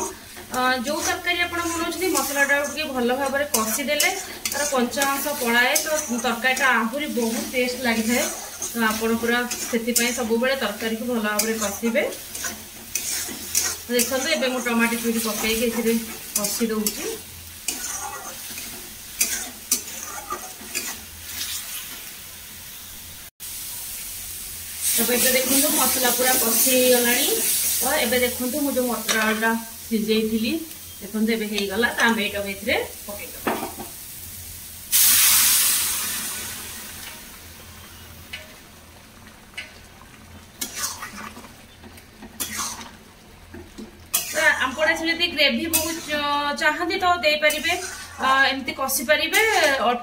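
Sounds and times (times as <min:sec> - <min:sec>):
spatula scraping metal pan: 0:00.0 - 0:21.8, 0:40.6 - 0:41.5, 0:42.2 - 0:43.0, 0:45.6 - 0:46.4, 0:47.4 - 0:48.4, 0:49.3 - 0:49.9
sauce sizzling in a pan: 0:00.0 - 0:50.0.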